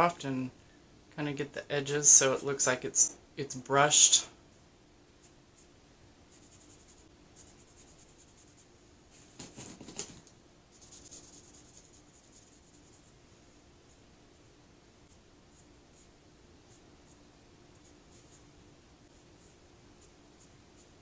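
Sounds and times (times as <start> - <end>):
cloth rubbing on glitter: 6.4 - 10.0, 10.7 - 13.2.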